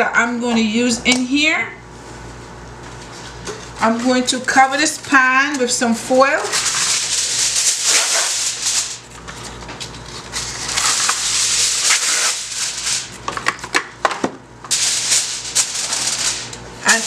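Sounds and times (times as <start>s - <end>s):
aluminium foil crinkling: 6.4s - 13.8s, 14.7s - 17.0s.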